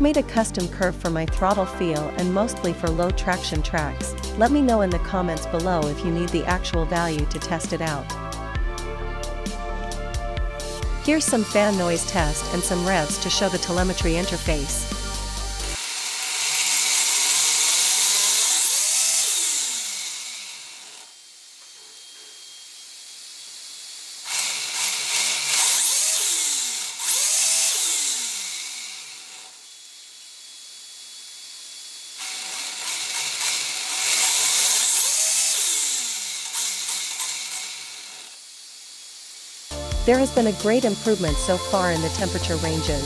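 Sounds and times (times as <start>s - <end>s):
electric motor whining: 5.2s - 43.0s.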